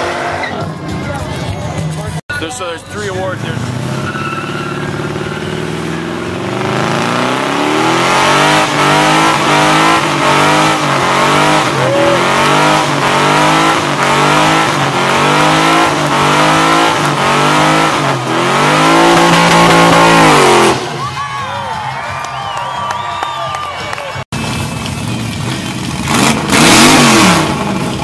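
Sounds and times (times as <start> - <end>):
car engine revving: 0.0 - 21.2, 24.4 - 28.0
tires spinning on pavement: 0.0 - 28.0.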